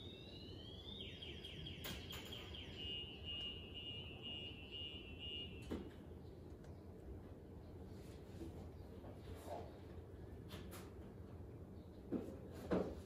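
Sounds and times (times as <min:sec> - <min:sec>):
faint car alarm siren: 0:00.0 - 0:06.2.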